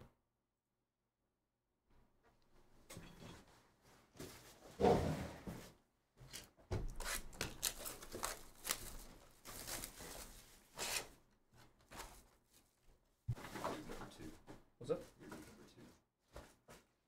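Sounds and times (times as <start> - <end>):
shrink wrap tearing and crinkling: 6.9 - 11.1.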